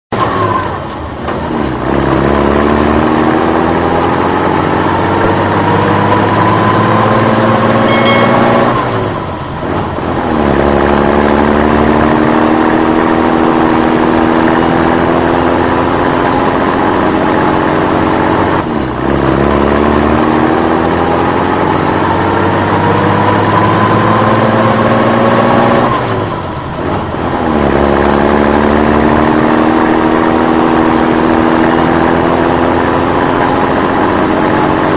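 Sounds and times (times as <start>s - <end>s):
tractor engine accelerating: 0.2s - 34.9s.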